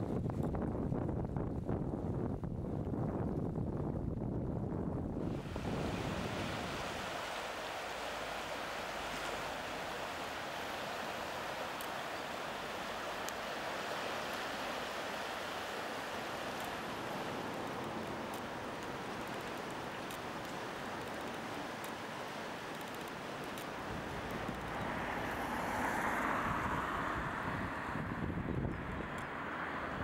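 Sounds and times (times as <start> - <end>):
river water rushing: 5.2 - 28.0
faint high clicks: 17.4 - 22.0, 22.6 - 24.9.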